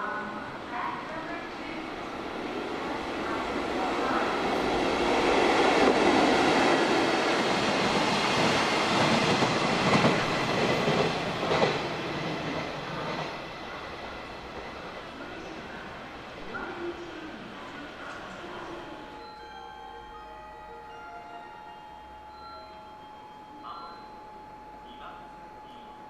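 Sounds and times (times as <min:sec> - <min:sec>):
train wheels rumbling on rail: 0:00.9 - 0:18.7.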